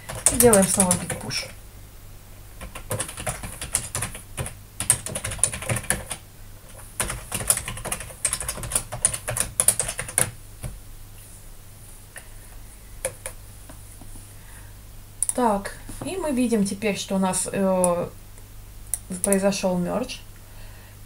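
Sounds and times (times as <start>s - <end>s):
computer keyboard typing: 0.0s - 1.6s, 2.6s - 10.4s.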